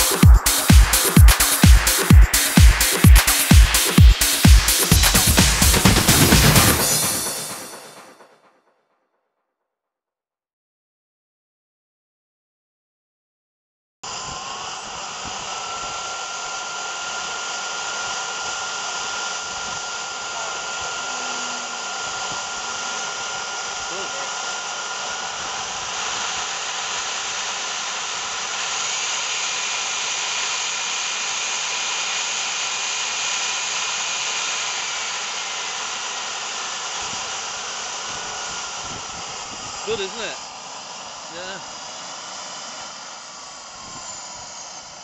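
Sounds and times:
jet turbine engine whining: 0.0s - 8.4s, 14.0s - 45.0s.

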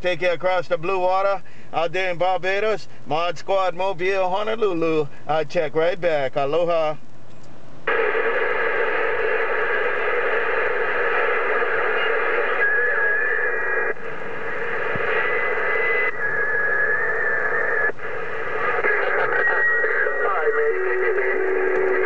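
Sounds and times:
radio static and hiss: 0.0s - 7.0s, 7.8s - 22.0s
wavering whistle: 16.0s - 17.8s.

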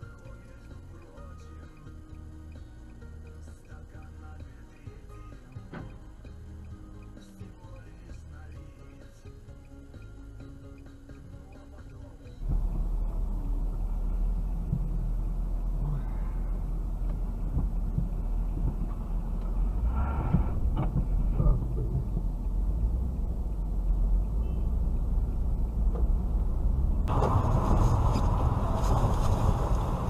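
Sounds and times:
road and wind noise: 1.8s - 30.0s
low car cabin rumble: 11.0s - 30.0s.

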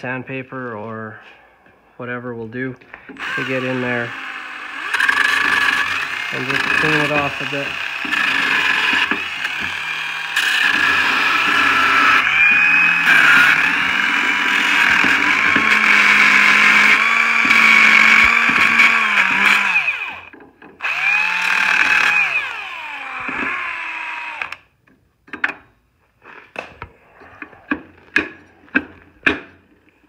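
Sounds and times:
sanding tool running: 3.2s - 24.6s
sanding tool winding down: 3.2s - 24.6s.

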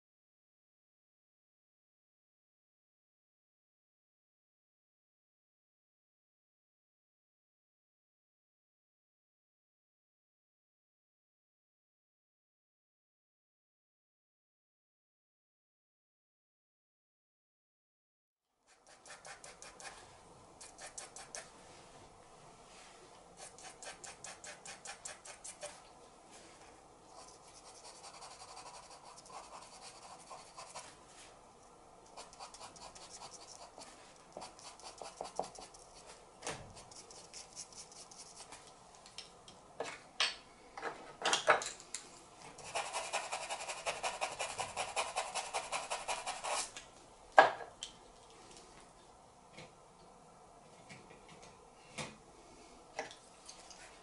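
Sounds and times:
charcoal pencil scratching paper: 18.7s - 20.0s, 20.6s - 21.5s, 23.4s - 25.8s, 27.2s - 30.9s, 32.1s - 38.5s, 42.6s - 46.7s.

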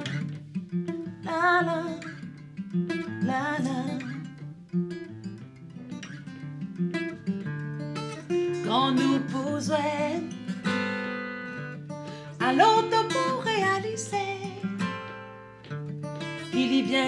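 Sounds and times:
acoustic guitar chords: 0.0s - 17.0s
person singing: 8.7s - 10.4s, 16.5s - 17.0s.

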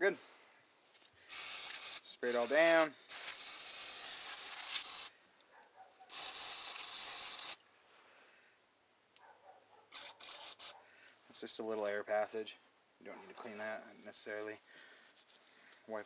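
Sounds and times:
aerosol spray hissing: 1.3s - 5.1s, 6.1s - 7.6s.

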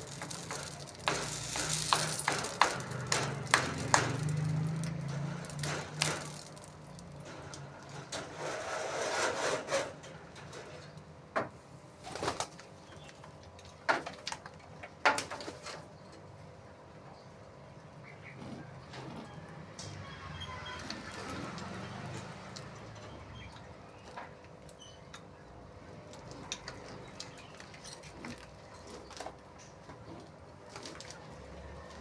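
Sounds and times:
pigeons pecking on stony ground: 0.0s - 8.0s, 17.7s - 32.0s.

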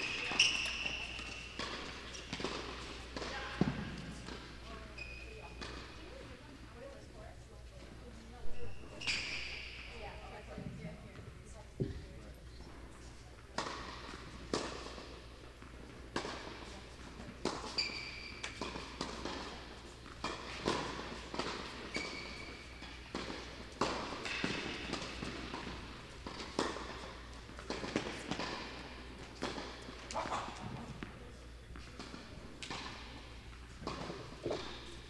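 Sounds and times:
tennis ball hits and bounces: 0.0s - 4.5s, 13.5s - 33.1s, 33.8s - 35.0s.

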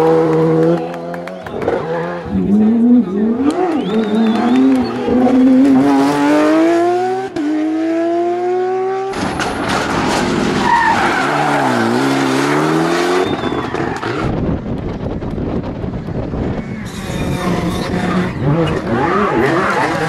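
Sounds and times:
car engine revving with upshift: 0.0s - 9.1s, 16.8s - 20.0s
rally car revving out of bend: 0.0s - 14.6s, 16.4s - 20.0s.

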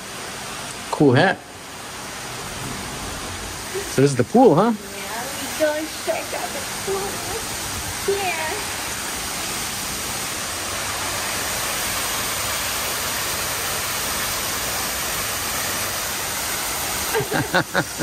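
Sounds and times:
waterfall pouring into pool: 0.0s - 18.0s.

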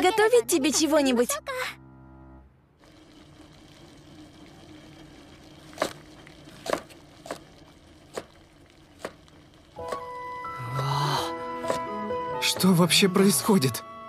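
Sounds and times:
pot simmering: 2.8s - 12.8s.

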